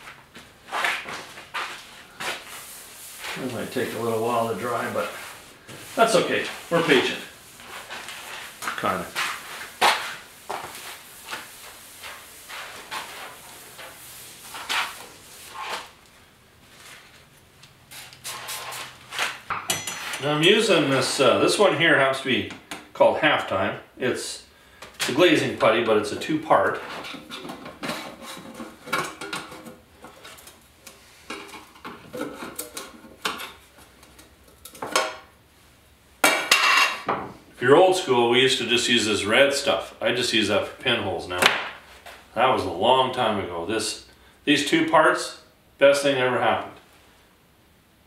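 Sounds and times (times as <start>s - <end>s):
towel wiping steel hood: 0.7s - 16.0s, 17.9s - 19.4s.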